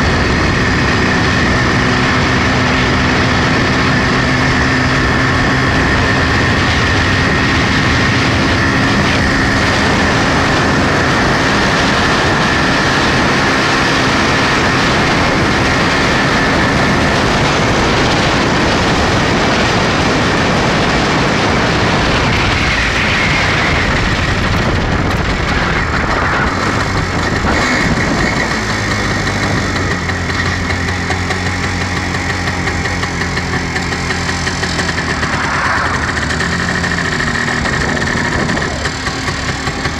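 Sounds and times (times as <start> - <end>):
two-stroke motorcycle engine running: 0.0 - 39.9
wind and road noise: 0.0 - 39.9.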